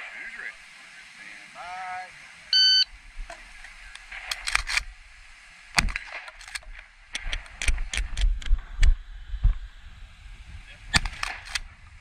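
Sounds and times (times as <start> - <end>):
shotgun shot: 10.9 - 11.6.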